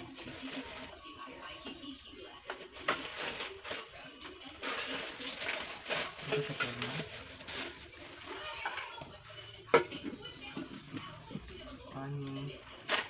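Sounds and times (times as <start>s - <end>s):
plastic packaging crinkling: 0.0s - 1.1s, 2.4s - 9.0s.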